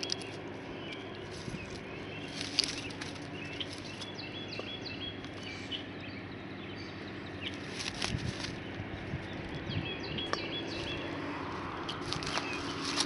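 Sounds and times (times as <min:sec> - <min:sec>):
hand crackling through dry straw: 0:00.0 - 0:05.6, 0:07.4 - 0:09.5, 0:10.8 - 0:13.0
small birds chirping: 0:00.0 - 0:13.0.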